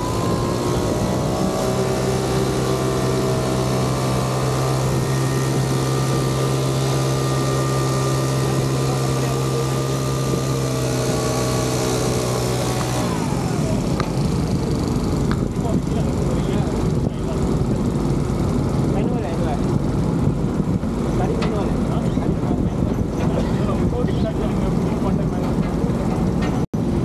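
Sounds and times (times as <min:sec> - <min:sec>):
air blower running: 0:00.0 - 0:27.0.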